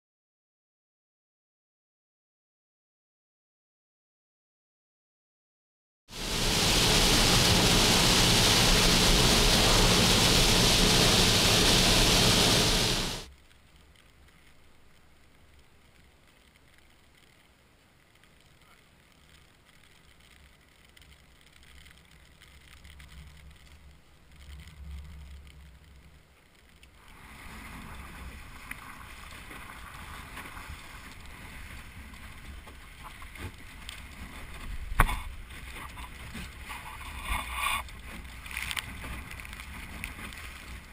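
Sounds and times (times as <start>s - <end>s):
faint wind rumble: 6.1s - 13.3s
water rushing along boat hull: 6.1s - 13.3s
hiss of rain and wind: 6.1s - 40.9s.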